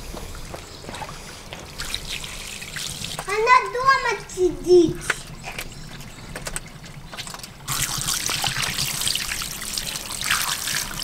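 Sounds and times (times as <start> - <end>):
hose water splashing on paving: 0.9 - 3.4, 7.7 - 11.0.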